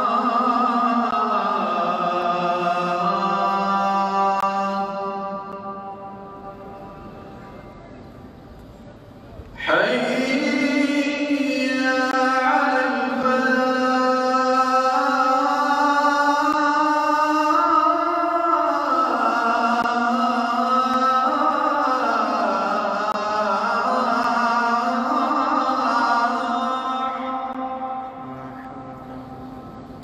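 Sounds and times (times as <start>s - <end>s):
man chanting: 9.6s - 29.6s.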